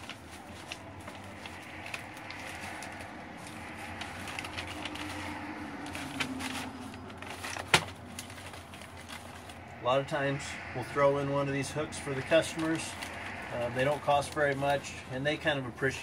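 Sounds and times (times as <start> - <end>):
plastic packaging crinkling: 0.0 - 9.7.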